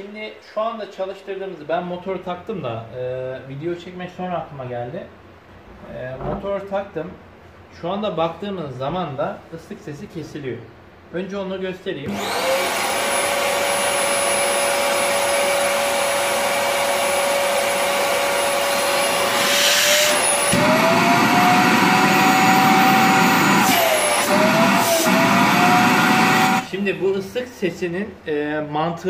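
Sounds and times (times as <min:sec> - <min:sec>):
vacuum cleaner motor whine: 0:12.1 - 0:26.7.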